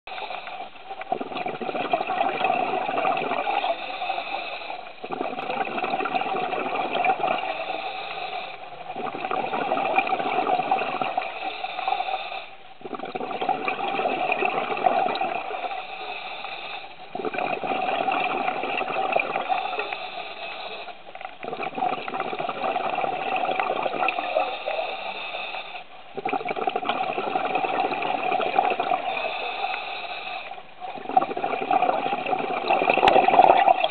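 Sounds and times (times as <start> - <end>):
scuba regulator breathing: 0.1 - 1.5, 3.2 - 5.3, 7.4 - 9.0, 11.0 - 12.6, 15.1 - 17.7, 19.2 - 21.1, 23.4 - 25.9, 27.3 - 31.4
exhaled bubbles rushing: 0.2 - 7.8, 8.8 - 11.4, 12.8 - 15.8, 17.0 - 20.0, 21.3 - 25.0, 26.1 - 29.8, 30.4 - 33.9.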